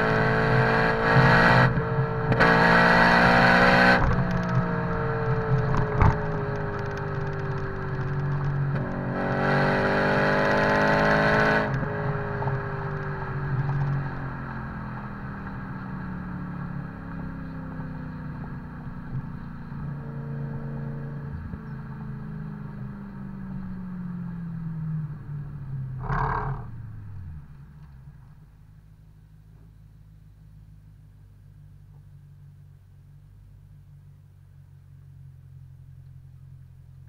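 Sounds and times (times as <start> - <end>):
car engine revving and exhaust: 0.0 - 37.0.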